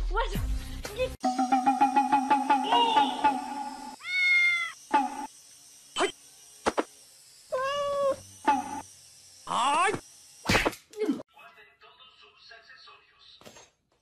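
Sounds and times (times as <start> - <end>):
rhythmic tune: 1.2 - 4.0, 4.9 - 5.3
cat meowing: 4.0 - 4.8, 7.5 - 8.2.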